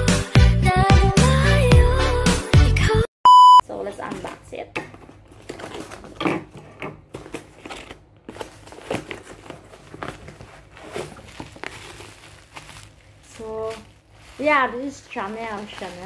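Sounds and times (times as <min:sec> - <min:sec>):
bubble wrap crinkling: 0:04.9 - 0:16.0
cardboard box flaps rustling: 0:05.3 - 0:13.0.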